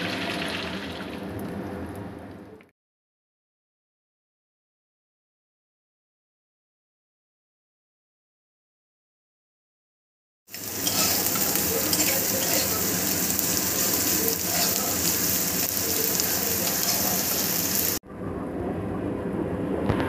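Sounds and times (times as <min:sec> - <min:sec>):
vegetables sizzling in hot oil: 0:10.5 - 0:18.0.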